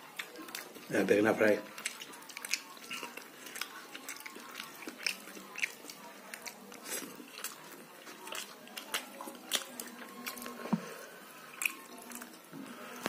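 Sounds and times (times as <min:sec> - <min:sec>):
person chewing food: 0:00.0 - 0:13.0
wet mouth clicks and smacks: 0:01.7 - 0:06.6.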